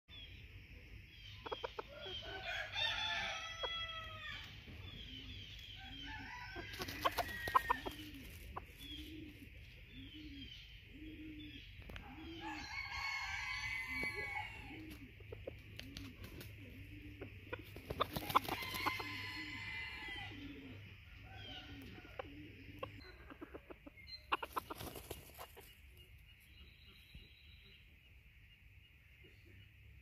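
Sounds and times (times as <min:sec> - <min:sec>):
chicken clucking: 0:00.8 - 0:02.6, 0:04.7 - 0:10.4, 0:14.0 - 0:27.2
roosters crowing: 0:01.8 - 0:09.3, 0:12.0 - 0:15.1, 0:16.6 - 0:22.8.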